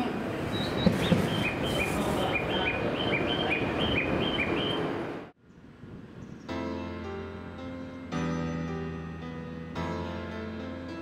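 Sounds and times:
station noise: 0.0s - 5.3s
piano music: 6.5s - 11.0s.

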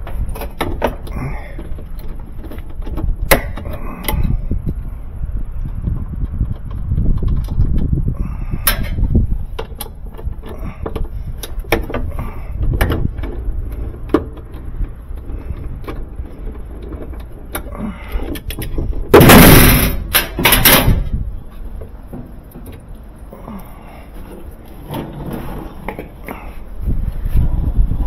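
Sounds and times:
loud rough burst of noise: 19.1s - 21.1s.

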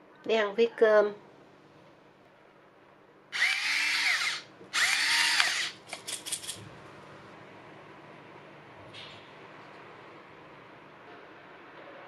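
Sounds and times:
electric pepper grinder whirring: 3.4s - 5.8s.

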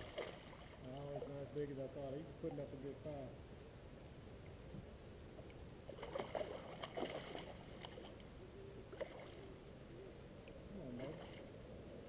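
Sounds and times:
kayak paddle splashing: 0.0s - 0.9s, 5.9s - 8.2s, 8.9s - 9.5s.

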